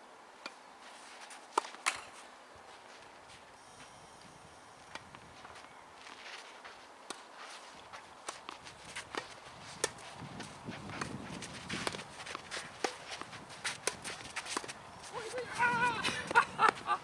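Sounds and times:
footsteps scuffing on clay: 0:04.8 - 0:15.7.

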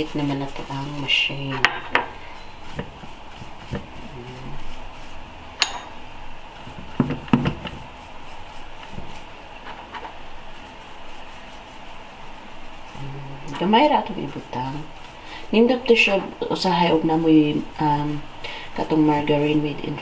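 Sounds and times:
pastry brush clinking and knocking: 0:05.6 - 0:06.0, 0:06.6 - 0:08.0.

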